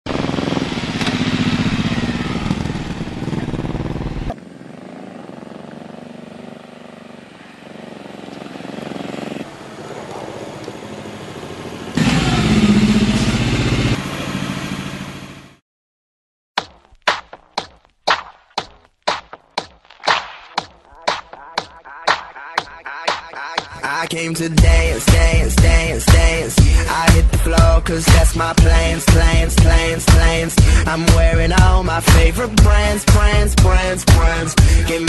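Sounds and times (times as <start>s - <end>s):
motorcycle engine running: 0.1s - 15.6s, 24.6s - 35.0s.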